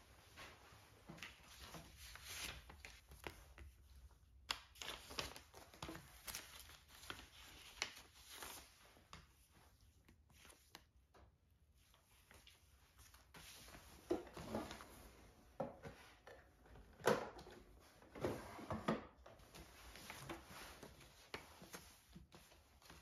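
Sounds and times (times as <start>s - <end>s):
paper rustling: 0.3s - 11.0s, 19.4s - 23.0s.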